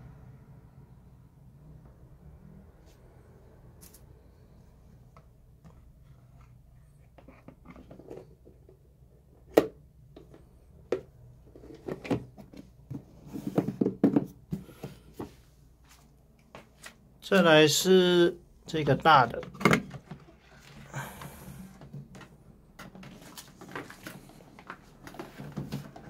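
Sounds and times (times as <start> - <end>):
plastic box knocking and rattling: 9.5 - 15.0, 19.3 - 20.4, 21.8 - 26.0.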